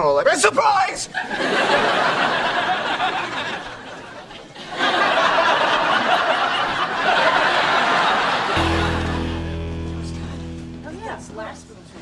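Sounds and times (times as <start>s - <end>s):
studio audience laughing: 1.1s - 9.5s.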